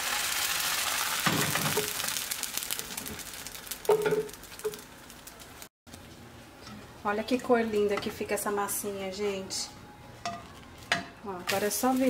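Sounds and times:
batter sizzling in a frying pan: 0:00.0 - 0:05.7, 0:11.5 - 0:12.0.

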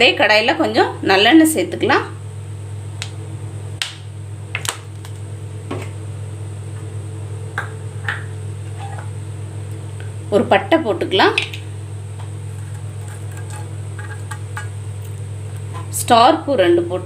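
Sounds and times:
steady low hum: 0:00.0 - 0:17.0
oil ticking and popping: 0:12.2 - 0:15.7.

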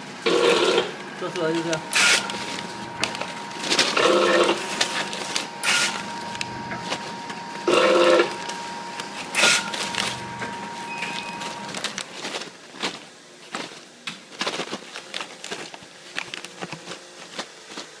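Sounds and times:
plastic snack bags crinkling: 0:01.1 - 0:07.6, 0:08.2 - 0:18.0.

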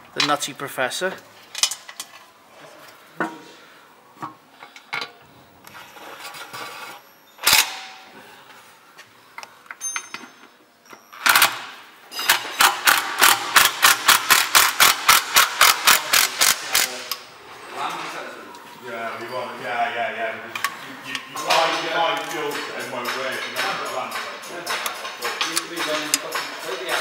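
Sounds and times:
impact wrench hammering: 0:12.2 - 0:17.2, 0:21.4 - 0:27.0.

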